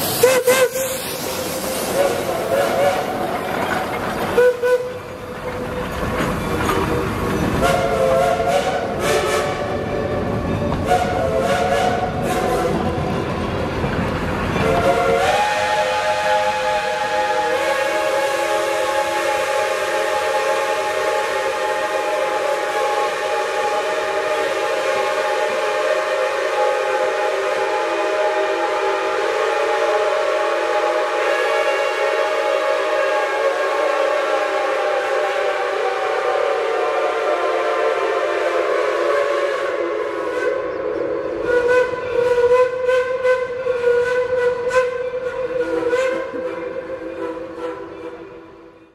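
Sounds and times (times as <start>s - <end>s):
steam locomotive chime whistle: 0.0s - 3.3s, 4.4s - 5.7s, 6.4s - 13.7s, 14.5s - 48.9s
short whistle toots: 0.2s - 3.1s.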